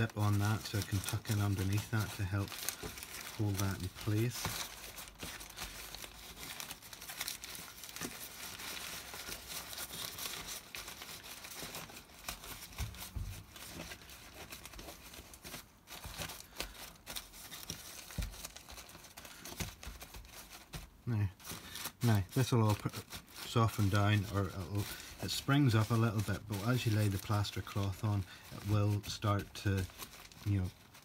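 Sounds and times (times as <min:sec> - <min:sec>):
newspaper crinkling and rustling: 0:00.0 - 0:31.0.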